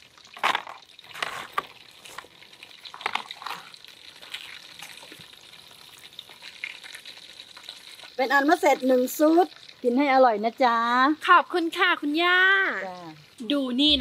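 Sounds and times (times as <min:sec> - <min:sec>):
fries dropped into foam box: 0:00.4 - 0:02.3
scrapes and rustles: 0:00.4 - 0:02.3.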